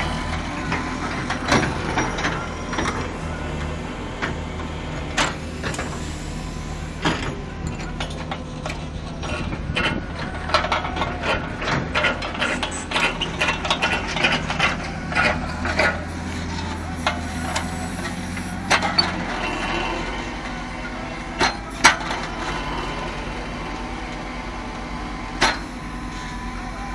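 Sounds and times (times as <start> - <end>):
heavy machinery diesel engines: 0.0 - 26.9
metal clanks and knocks: 7.0 - 20.6, 21.3 - 22.7.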